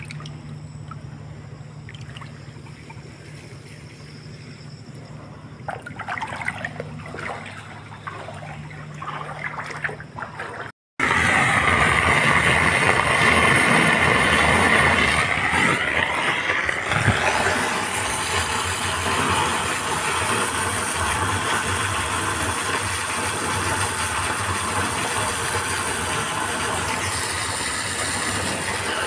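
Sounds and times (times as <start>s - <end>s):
water rushing down drain: 0.0s - 1.1s, 1.8s - 4.1s, 5.6s - 29.0s
water trickling into drain: 0.0s - 4.1s.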